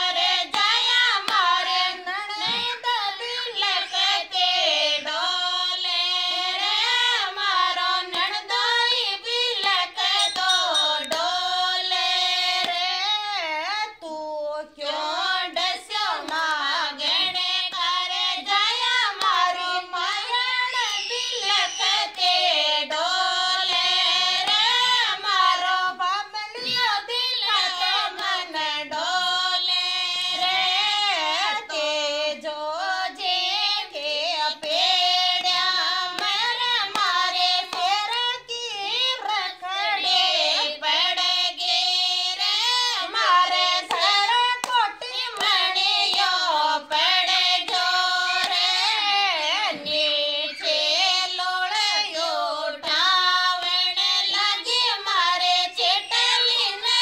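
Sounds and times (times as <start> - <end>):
women singing unaccompanied: 0.0 - 57.0
hand claps: 0.2 - 1.7, 8.0 - 8.6, 9.6 - 11.4, 12.6 - 12.9, 15.5 - 19.7, 24.4 - 25.3, 34.6 - 38.2, 43.1 - 50.1.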